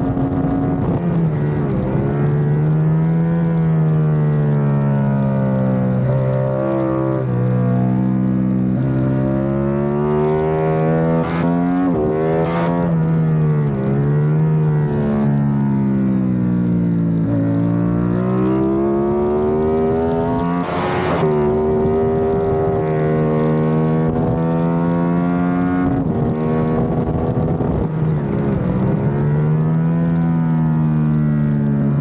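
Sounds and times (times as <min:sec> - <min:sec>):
motorcycle engine revving: 0:00.0 - 0:32.0.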